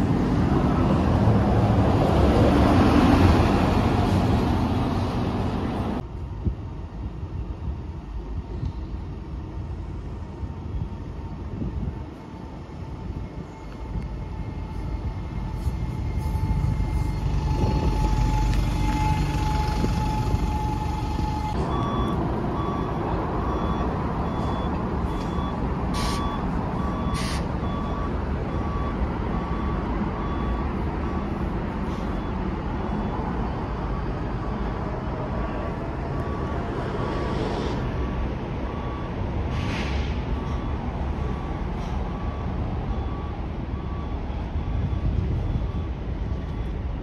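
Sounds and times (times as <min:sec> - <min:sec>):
bus diesel engine: 0:00.0 - 0:47.0
reversing alarm beeping: 0:13.0 - 0:34.8, 0:35.4 - 0:47.0
air brake hisses: 0:25.9 - 0:26.3, 0:27.1 - 0:27.5, 0:39.5 - 0:40.6.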